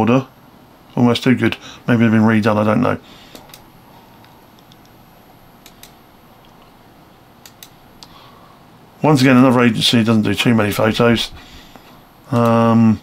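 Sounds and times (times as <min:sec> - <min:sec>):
faint computer clicks: 0:03.3 - 0:05.0, 0:05.6 - 0:06.7, 0:07.4 - 0:08.2.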